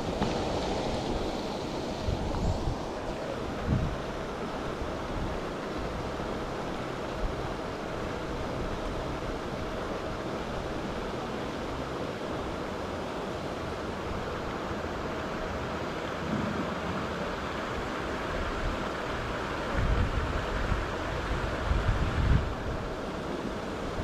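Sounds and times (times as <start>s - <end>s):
wind on microphone: 0.0s - 11.0s, 16.2s - 24.0s
water churned by aerator: 0.0s - 24.0s.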